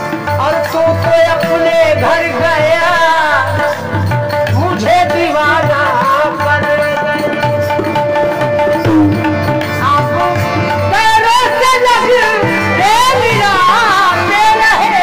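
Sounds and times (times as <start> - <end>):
harmonium notes: 0.0 - 15.0
tabla rhythm: 0.0 - 15.0.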